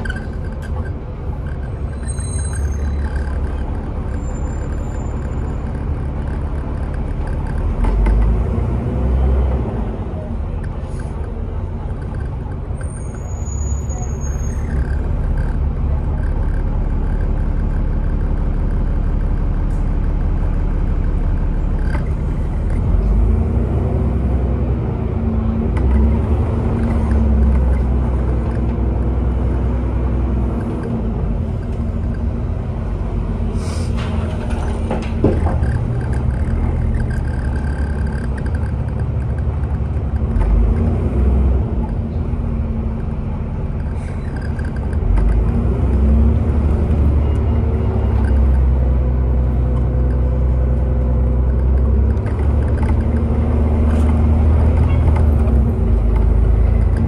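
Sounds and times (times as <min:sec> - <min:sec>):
high-pitched squeals: 0:00.0 - 0:07.7
bus engine running: 0:00.0 - 0:57.0.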